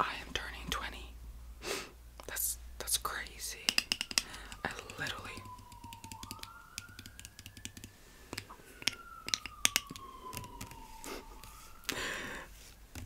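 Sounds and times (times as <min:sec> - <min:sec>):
sharp clicks and taps: 0:03.6 - 0:10.8
emergency vehicle siren wailing: 0:04.0 - 0:12.8.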